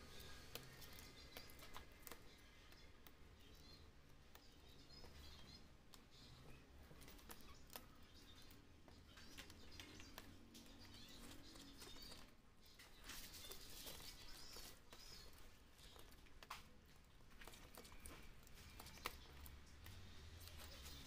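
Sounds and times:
faint high chirping: 0.0 - 16.6.

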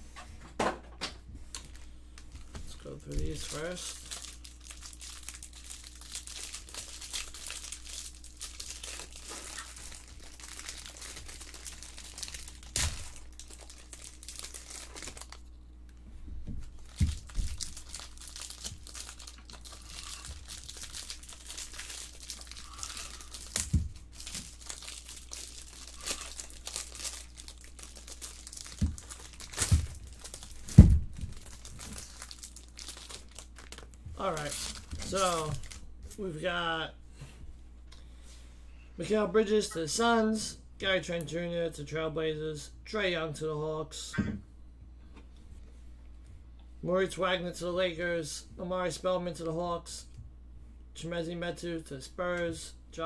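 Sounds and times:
cellophane wrappers crinkling and tearing: 1.5 - 16.0, 16.6 - 36.2.

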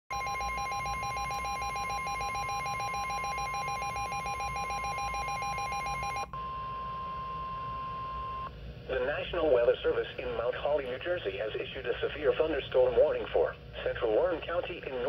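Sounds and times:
rapidly pulsing alarm beeps: 0.1 - 8.5.

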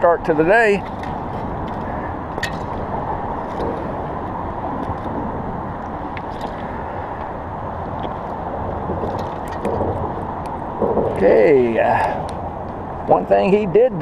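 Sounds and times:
steady rushing noise: 0.0 - 14.0.

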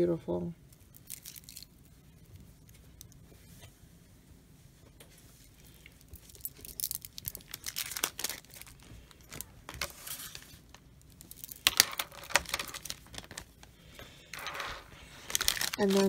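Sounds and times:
plastic bags crinkling: 0.7 - 2.0, 5.6 - 16.0.

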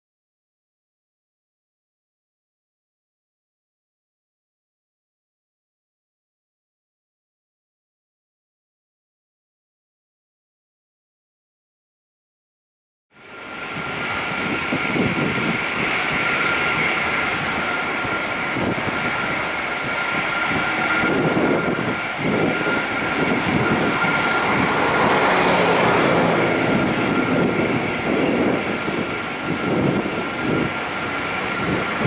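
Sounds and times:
jet engines idling: 13.2 - 32.0.

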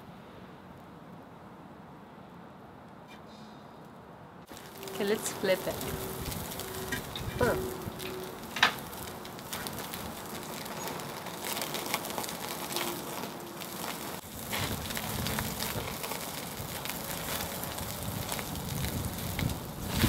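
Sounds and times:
steak sizzling on grill: 4.5 - 20.0.

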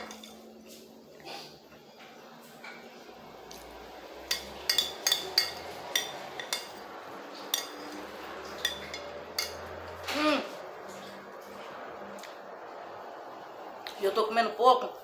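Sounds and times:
spoon clinking on a plate: 0.0 - 0.5, 4.2 - 6.8, 7.4 - 10.1.

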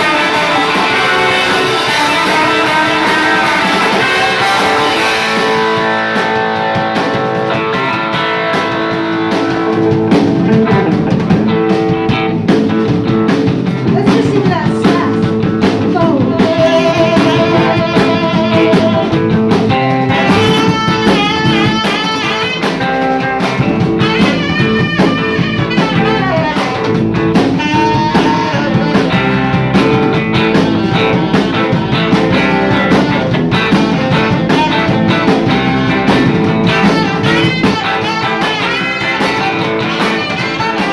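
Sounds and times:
live rock band playing: 0.0 - 40.9.

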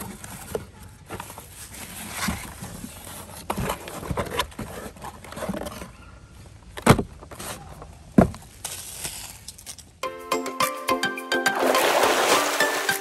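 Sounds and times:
cardboard box rustling: 0.0 - 6.0.

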